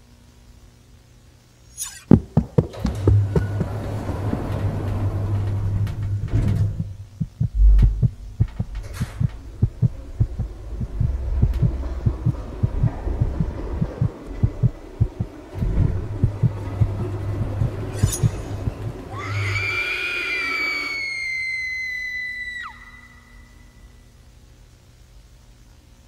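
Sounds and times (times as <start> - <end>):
low droning hum: 0.0 - 26.0
fast uneven dull thumps: 2.1 - 4.2, 6.3 - 17.8
heavy low thud: 5.9 - 17.9.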